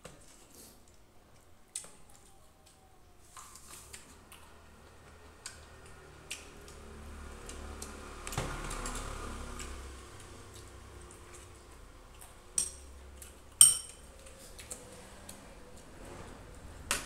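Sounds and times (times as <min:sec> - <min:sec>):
spoons clicking against plates: 0:12.5 - 0:14.1.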